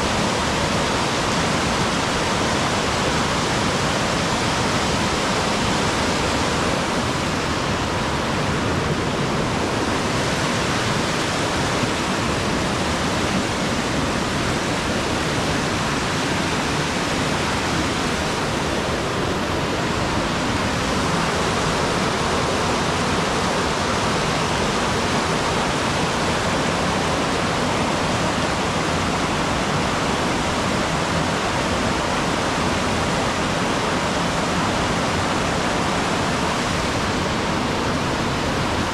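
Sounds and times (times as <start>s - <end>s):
rushing water roar: 0.0s - 38.9s.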